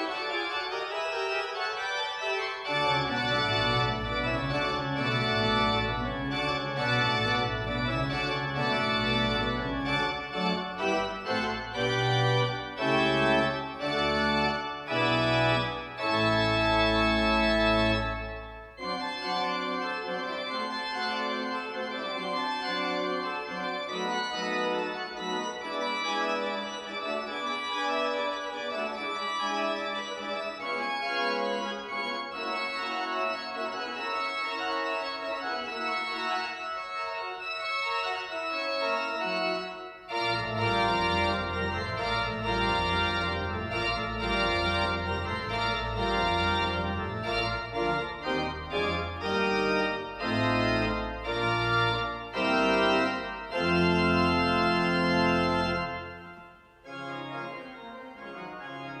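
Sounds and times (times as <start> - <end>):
deep organ pedal bass: 0.0 - 34.2, 38.9 - 59.0
pipe organ chords: 0.0 - 59.0.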